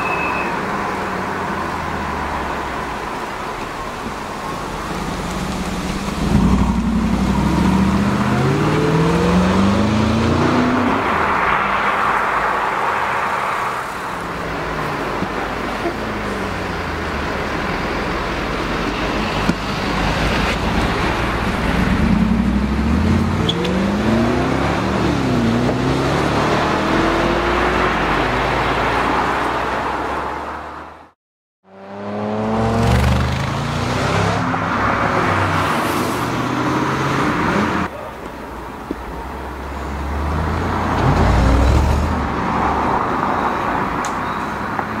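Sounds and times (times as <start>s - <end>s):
car engine accelerating hard: 5.0s - 11.2s.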